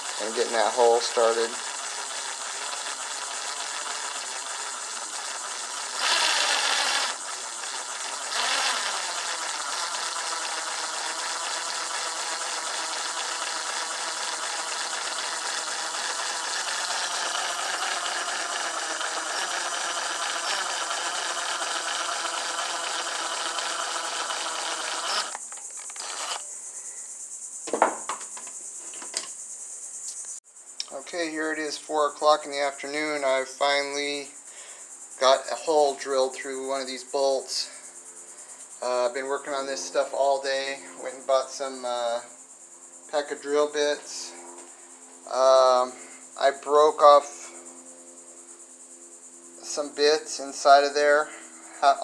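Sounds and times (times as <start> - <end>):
electric drill whining: 0.0 - 26.5
short knocks: 27.6 - 29.2.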